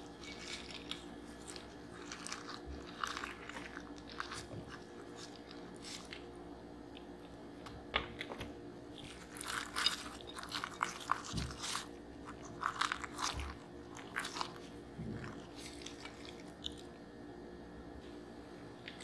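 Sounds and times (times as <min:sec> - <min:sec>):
wet crackling and squelching: 0:00.0 - 0:06.3, 0:08.9 - 0:16.9.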